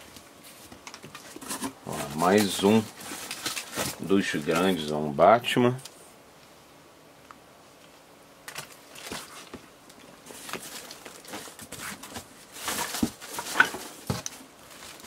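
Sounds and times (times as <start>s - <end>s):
rummaging through toys in a box: 1.1s - 4.9s, 10.2s - 15.0s.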